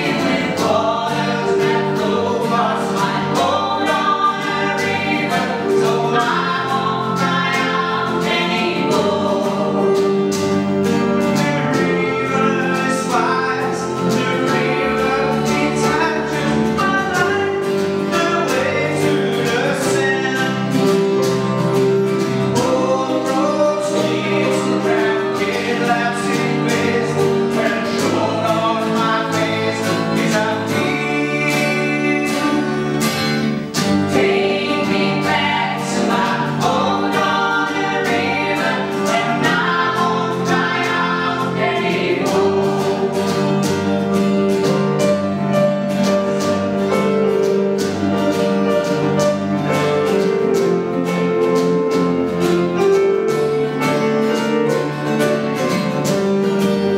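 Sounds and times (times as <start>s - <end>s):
two women singing: 0.0s - 20.8s, 22.6s - 33.0s, 34.0s - 44.0s
strummed acoustic guitar: 0.0s - 56.9s.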